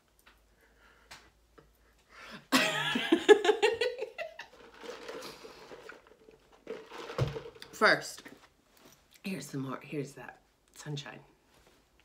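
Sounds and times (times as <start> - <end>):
woman laughing: 2.5 - 4.6.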